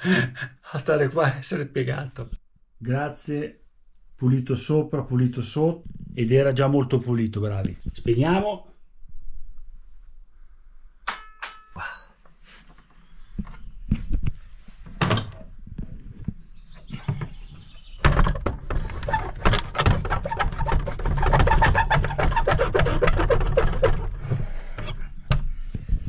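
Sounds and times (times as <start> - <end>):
wooden door shutting: 15.0 - 15.5, 18.0 - 22.5
loud rumble with scraping: 18.0 - 26.0.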